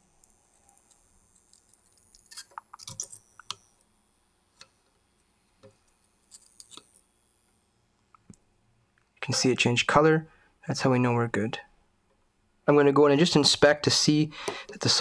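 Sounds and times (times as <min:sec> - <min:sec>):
soldering ticks and crackles: 0:00.0 - 0:08.4.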